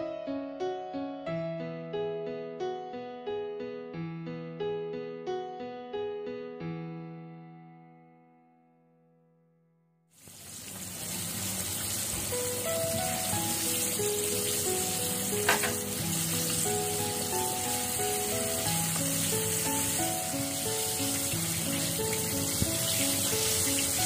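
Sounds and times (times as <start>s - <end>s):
oil bubbling and sizzling: 10.2s - 24.0s
soft background music: 12.0s - 24.0s
sharp oil pop: 15.4s - 15.9s.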